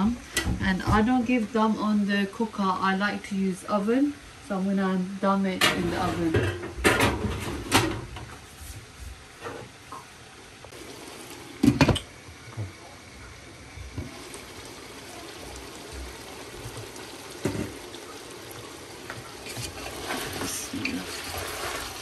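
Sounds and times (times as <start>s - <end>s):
steady watery hiss: 8.5s - 22.0s.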